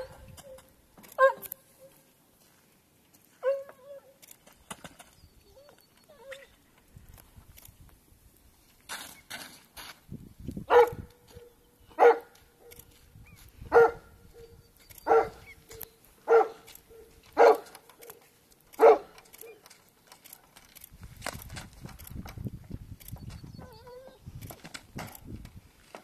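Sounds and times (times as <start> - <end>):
dog barking: 1.1 - 1.5, 3.4 - 4.0, 10.7 - 12.8, 13.7 - 18.2, 18.8 - 19.6.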